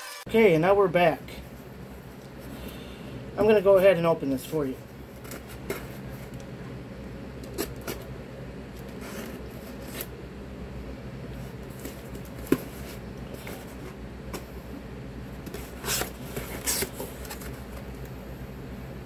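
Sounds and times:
cardboard box scratching and rustling: 0:15.5 - 0:17.8.

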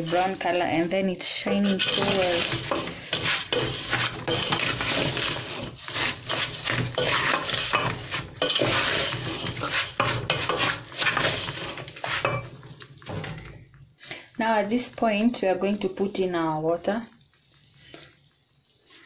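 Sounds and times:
wooden spoon scraping a pot: 0:00.0 - 0:13.7.

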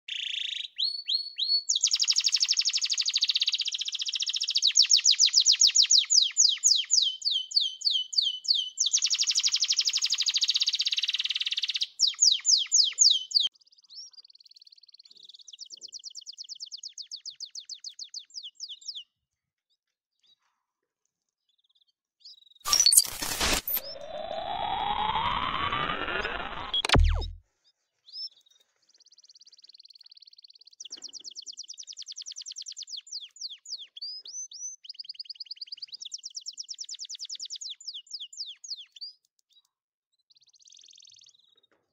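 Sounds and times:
canary singing: 0:05.9 - 0:13.5.

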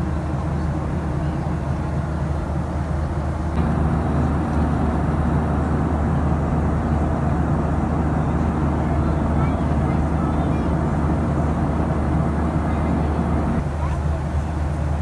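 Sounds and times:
jet engine drone: 0:03.2 - 0:13.8
air rushing past fuselage: 0:03.6 - 0:13.6.

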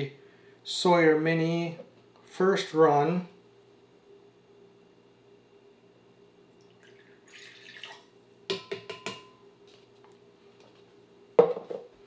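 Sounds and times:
water pouring into a pitcher: 0:06.6 - 0:08.2
cup and pitcher knocking: 0:08.5 - 0:09.3, 0:11.4 - 0:11.9.

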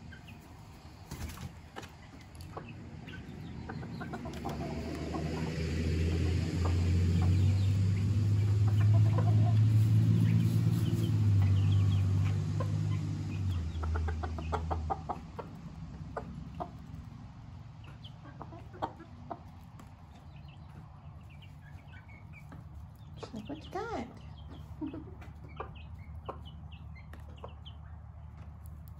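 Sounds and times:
chickens clucking: 0:00.0 - 0:28.9
high chick peeps: 0:00.0 - 0:28.9
loud low hum: 0:02.8 - 0:14.0.

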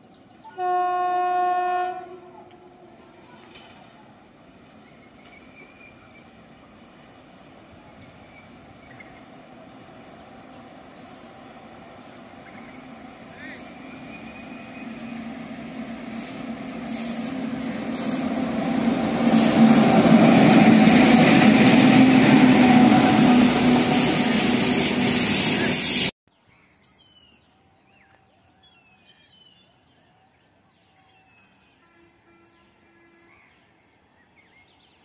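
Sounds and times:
locomotive hum: 0:00.3 - 0:26.1
train wheels rumbling on rails: 0:02.5 - 0:26.1.

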